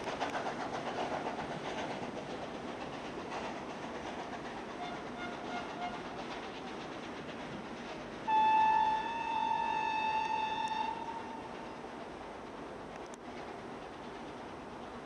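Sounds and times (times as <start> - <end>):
train running noise: 0.0 - 15.0
train whistle: 4.8 - 6.1, 8.3 - 11.6.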